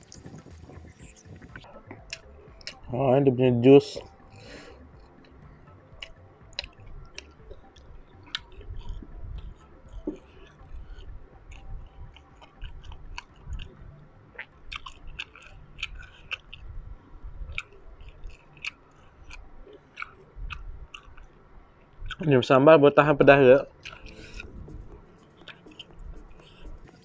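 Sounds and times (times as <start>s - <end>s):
wet chewing mouth clicks: 0.0s - 2.9s, 4.0s - 16.8s, 17.4s - 22.3s, 23.8s - 27.0s.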